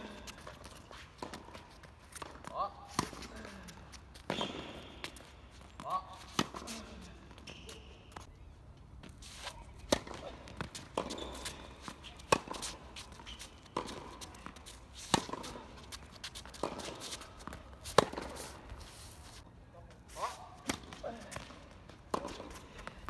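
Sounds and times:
rackets hitting tennis ball: 0.0 - 18.8, 20.2 - 23.0.

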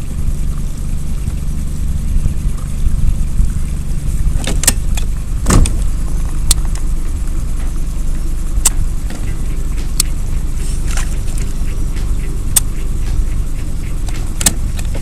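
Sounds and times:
boat motor humming: 0.0 - 15.0
sharp clicks and knocks: 10.8 - 15.0.

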